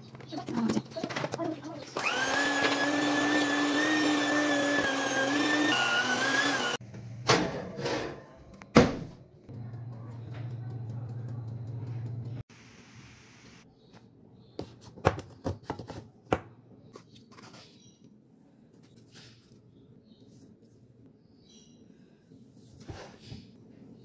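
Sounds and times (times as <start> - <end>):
electric hand mixer running: 2.0 - 6.8
oven humming: 9.5 - 12.4.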